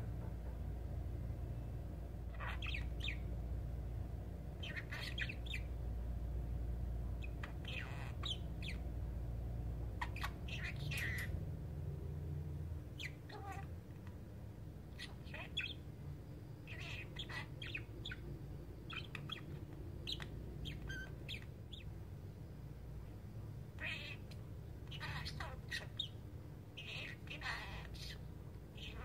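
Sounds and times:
budgerigar chirps and chatter: 2.2 - 3.3, 4.6 - 5.8, 7.2 - 8.9, 9.9 - 11.4, 13.0 - 14.2, 14.9 - 15.9, 16.6 - 22.0, 23.7 - 29.0.

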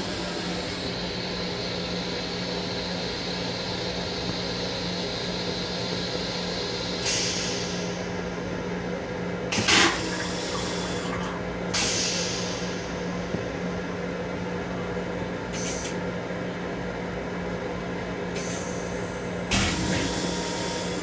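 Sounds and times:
toilet motor hum: 19.3 - 21.0.

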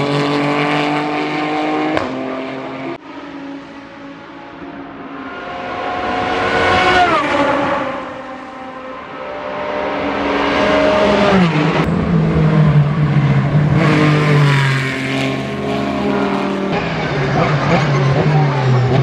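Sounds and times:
race car engines at speed: 0.0 - 19.0.

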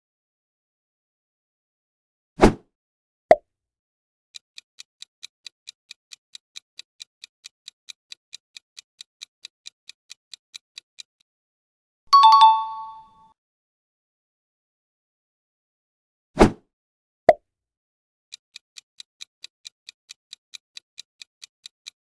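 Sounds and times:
clock ticking fast: 4.3 - 11.3, 18.3 - 22.0
bell-like chime: 12.1 - 13.2.

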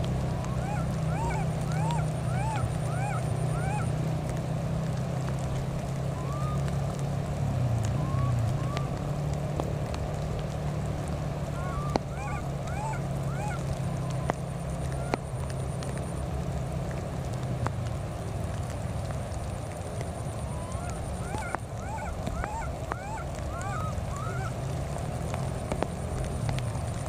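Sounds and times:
low mechanical hum: 0.0 - 27.0
baby monkeys crying: 0.4 - 3.9, 11.6 - 14.2.

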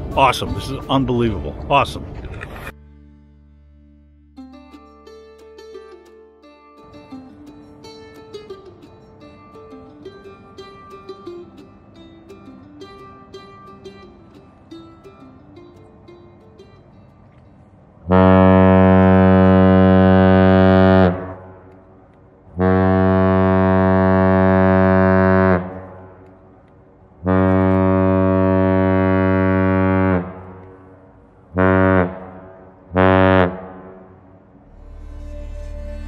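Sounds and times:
deep ship's horn blasts: 18.0 - 21.9, 22.5 - 26.3, 27.2 - 36.0.

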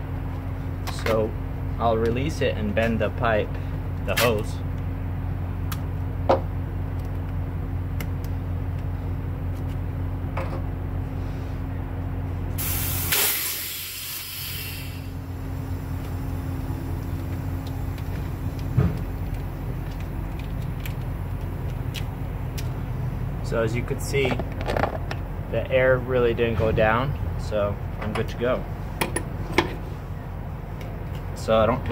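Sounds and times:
steady low hum: 0.0 - 31.9
compressed air hissing: 12.6 - 16.4.

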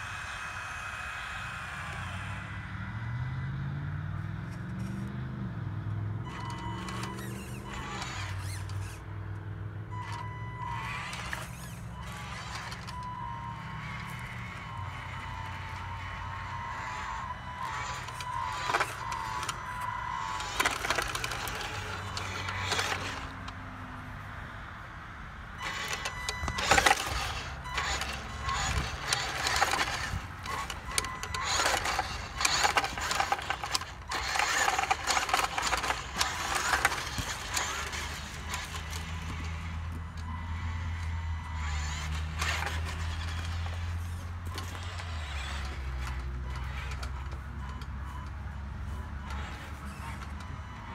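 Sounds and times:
toy truck motor hum: 0.0 - 50.9
crunching and clicking on gravel: 13.8 - 23.3, 25.6 - 40.0.

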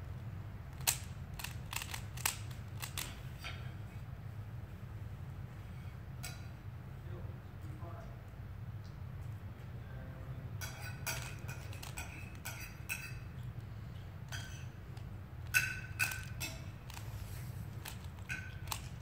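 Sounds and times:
steady low hum: 0.0 - 19.0
puzzle cube clicking: 0.8 - 3.2, 15.5 - 19.0
cutlery and dishes clinking: 10.6 - 13.3.

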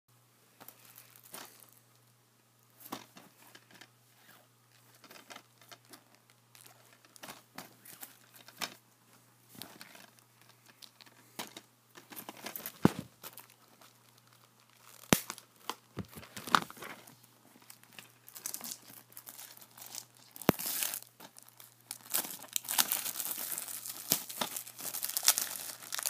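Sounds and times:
faint steady hum: 0.1 - 26.0
plastic wrapping crinkling and tearing: 9.6 - 26.0.

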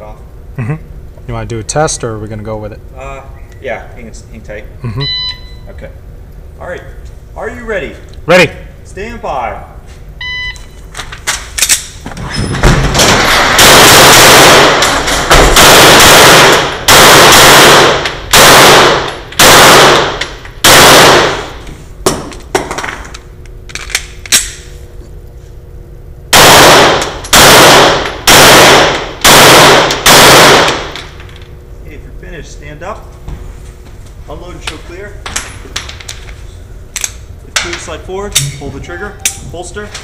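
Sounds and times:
shot timer beep: 5.0 - 5.7, 10.2 - 10.8
handgun shots echoing: 13.5 - 21.5, 26.3 - 31.1.

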